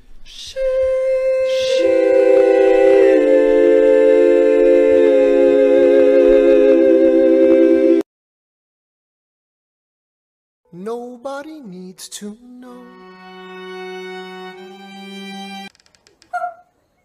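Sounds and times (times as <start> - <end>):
men singing in harmony: 0.6 - 8.0.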